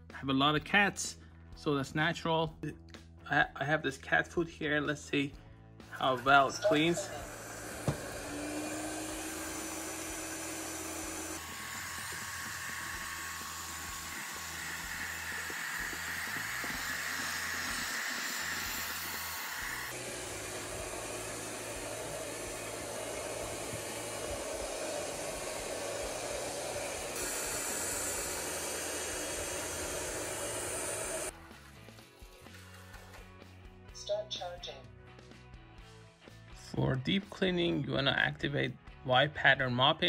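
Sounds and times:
robot vacuum whirring: 6.2 - 31.3.

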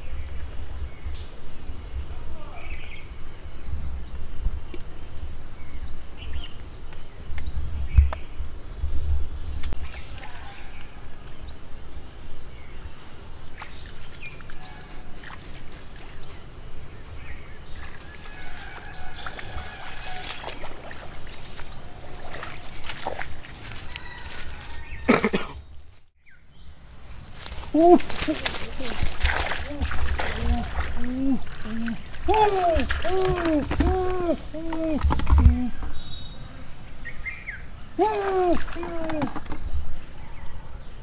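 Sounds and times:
bird chirping: 29.7 - 41.0.

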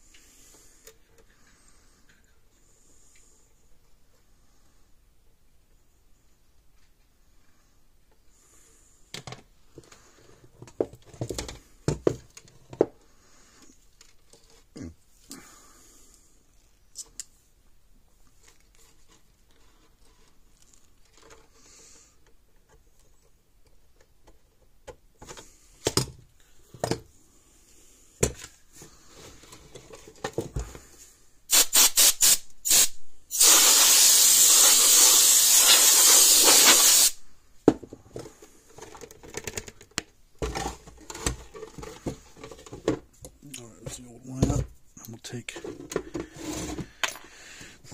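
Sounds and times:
aerosol spray can hissing: 31.5 - 37.2.

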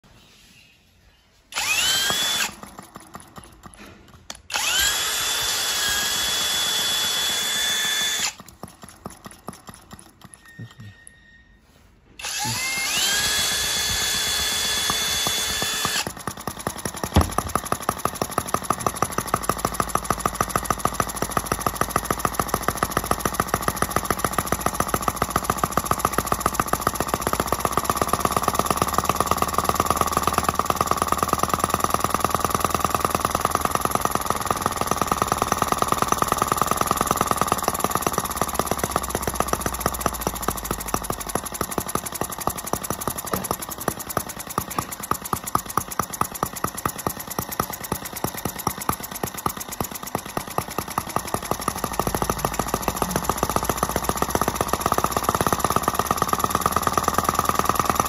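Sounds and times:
small engine running: 1.4 - 11.3, 12.1 - 58.0
model engine puffing: 1.4 - 58.0
starter motor whine: 1.5 - 11.4, 12.0 - 58.0
engine backfire bang: 17.1 - 17.6.

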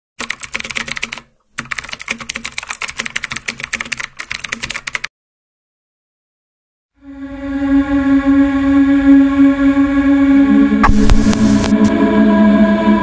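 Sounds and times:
keyboard typing: 0.2 - 5.1.

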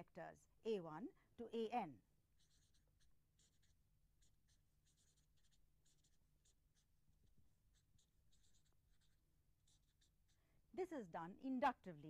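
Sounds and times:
faint scratching of writing: 2.0 - 11.0.

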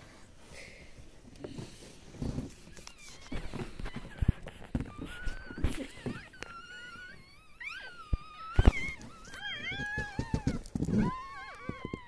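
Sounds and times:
dog whining: 2.5 - 12.0.

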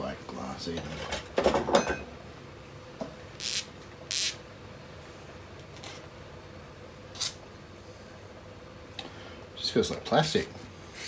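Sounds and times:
faint steady hum: 0.0 - 11.0
scratchy rubbing of small part: 3.4 - 4.4.

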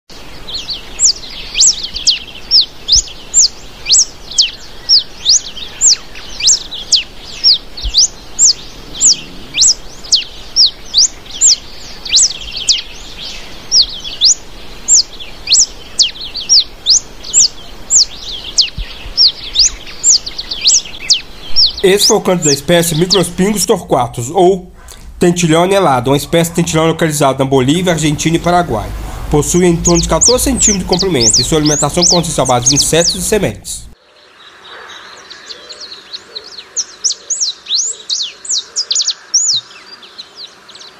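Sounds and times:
finch singing: 0.1 - 40.9.

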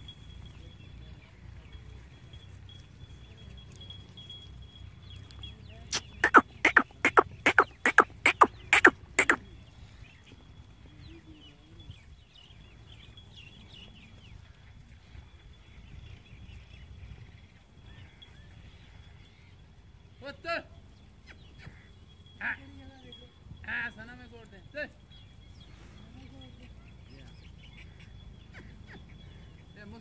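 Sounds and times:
faint short chirps: 5.9 - 9.4.

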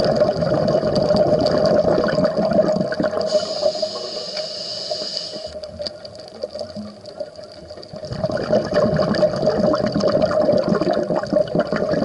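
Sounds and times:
bubbling rush of exhaled air: 0.0 - 5.6, 7.9 - 12.0
diver inhaling through regulator: 3.2 - 5.6.

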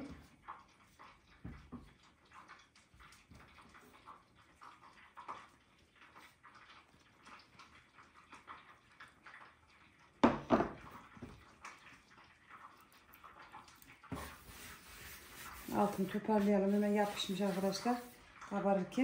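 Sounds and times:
ceramic plate knocking on table: 10.2 - 10.8.

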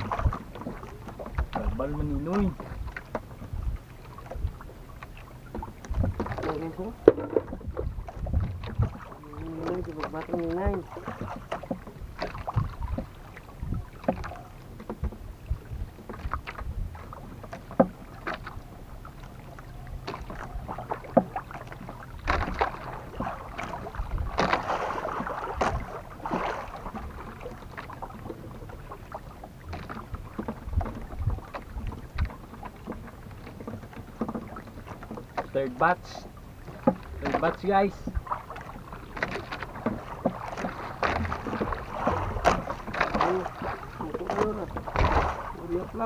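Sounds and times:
rush of water: 0.0 - 46.0
water lapping against a boat: 0.0 - 46.0
clicks and knocks: 7.0 - 7.6.

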